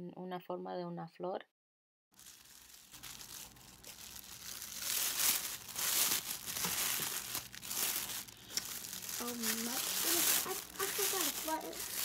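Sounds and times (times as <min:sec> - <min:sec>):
tissue paper rustling: 0:02.2 - 0:12.0.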